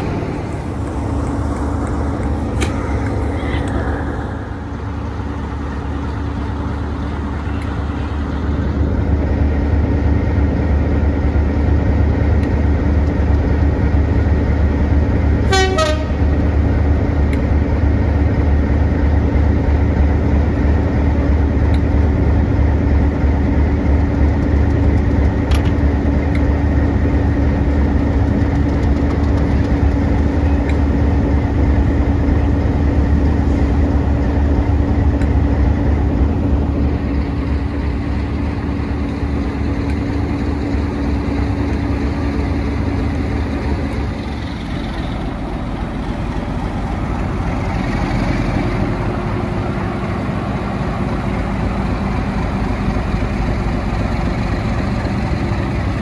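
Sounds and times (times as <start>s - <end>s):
diesel locomotive running: 0.0s - 56.0s
train horn toot: 15.4s - 16.3s.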